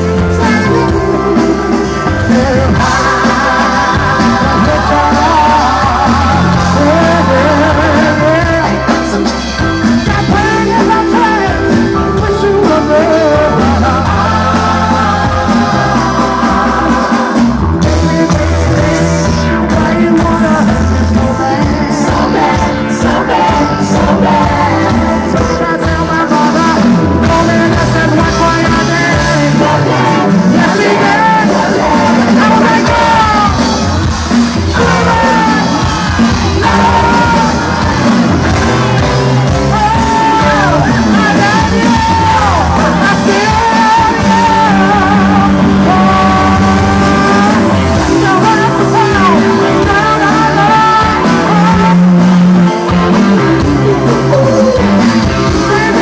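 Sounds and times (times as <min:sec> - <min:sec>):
live rock band playing: 0:00.0 - 0:56.0
man singing lead: 0:00.0 - 0:56.0.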